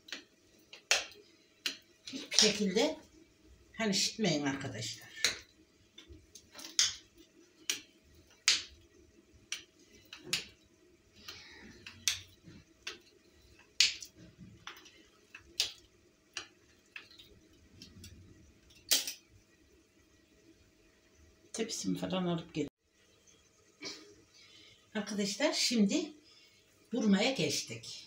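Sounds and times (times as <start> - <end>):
hands tapping dough on tiles: 0.0 - 2.6, 5.2 - 8.8, 9.4 - 10.6, 11.2 - 17.4
faint steady hum: 0.0 - 28.0.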